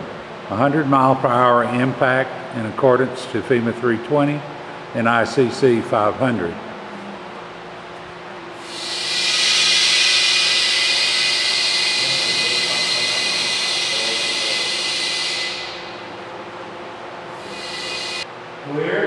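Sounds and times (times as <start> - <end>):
compressed air hissing: 8.5 - 16.1, 17.3 - 18.3
whistling tone: 8.8 - 15.8, 17.4 - 18.2.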